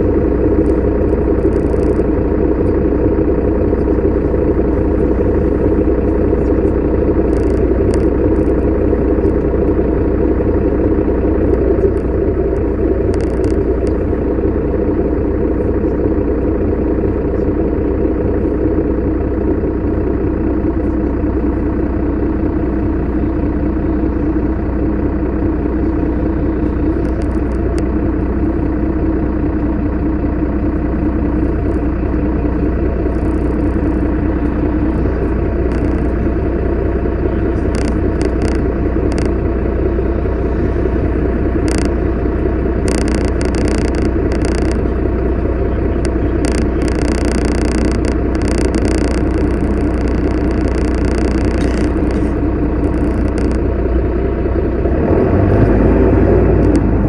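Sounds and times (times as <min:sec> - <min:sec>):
bus engine idling: 0:00.0 - 0:57.0.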